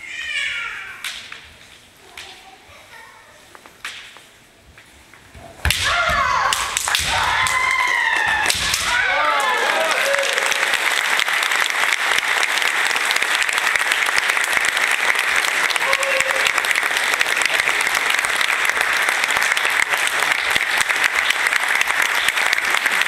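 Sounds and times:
spectators clapping: 0:06.4 - 0:23.0.

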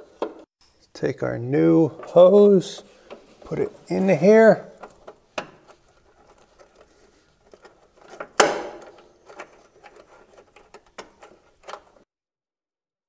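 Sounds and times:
metallic clicks and scrapes: 0:04.7 - 0:12.1.

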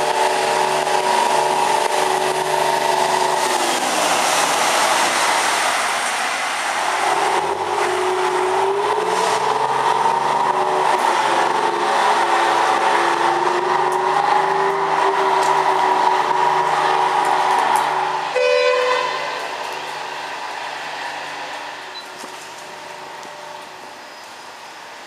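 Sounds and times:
railcar diesel engine running: 0:00.0 - 0:25.0.

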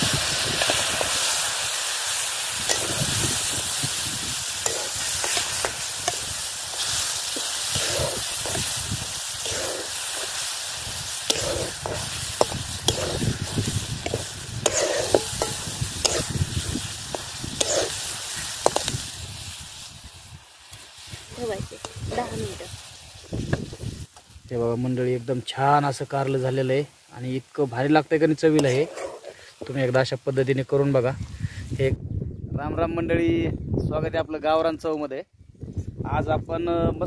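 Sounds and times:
spices sizzling in oil: 0:00.0 - 0:31.8
metal spatula scraping pan: 0:02.7 - 0:03.6, 0:04.4 - 0:16.4, 0:17.1 - 0:19.0, 0:28.6 - 0:29.8.

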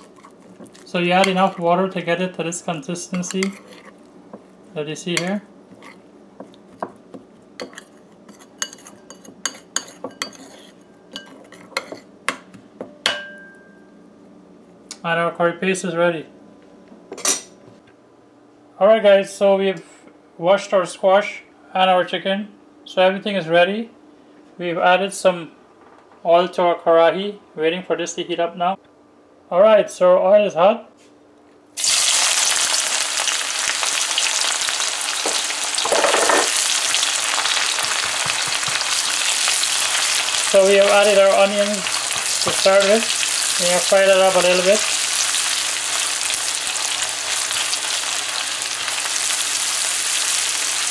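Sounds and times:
metal spoon scraping bowl: 0:03.1 - 0:04.0, 0:07.6 - 0:12.0
onions sizzling in hot oil: 0:31.8 - 0:50.9.

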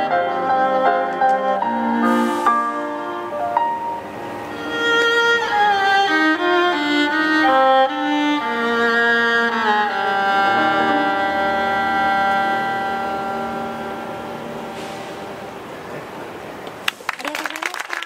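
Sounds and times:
digital piano chords: 0:00.0 - 0:05.6, 0:10.2 - 0:15.8
violin melody: 0:00.0 - 0:15.8.

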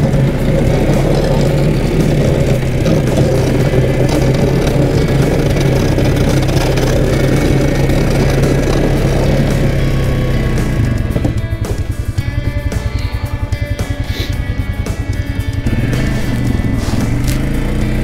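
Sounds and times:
atv engine running under load: 0:00.0 - 0:18.0.

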